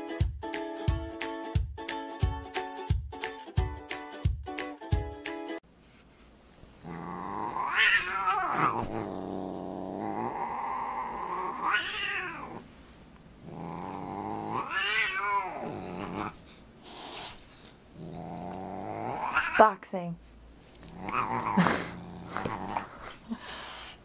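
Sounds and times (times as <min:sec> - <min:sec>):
cat yowling and growling: 0:06.8 - 0:12.6, 0:13.5 - 0:16.4, 0:18.1 - 0:19.6, 0:20.9 - 0:22.9.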